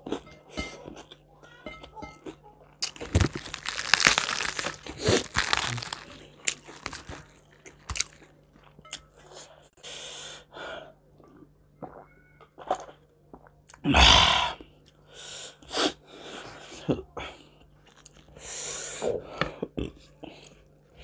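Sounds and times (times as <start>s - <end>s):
chewing crunchy food: 0.0s - 9.3s, 17.5s - 18.4s.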